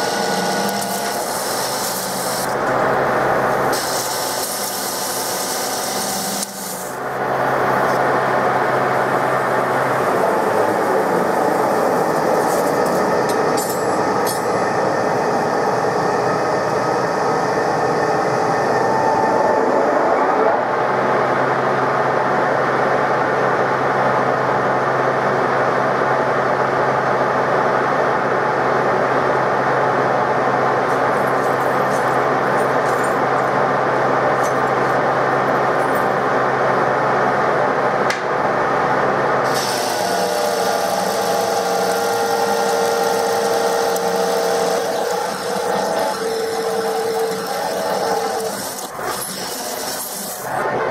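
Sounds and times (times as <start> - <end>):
metal lathe running: 0.0 - 18.8, 39.3 - 50.9.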